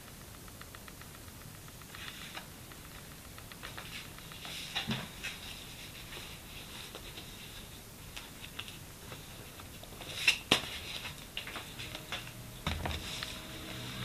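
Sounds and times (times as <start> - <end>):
sharp clicks: 0.0 - 4.5
paper notebooks rustling: 3.6 - 13.8.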